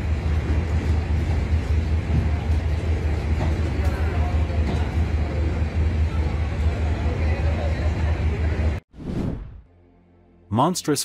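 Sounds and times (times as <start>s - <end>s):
faint voices: 1.9s - 8.8s.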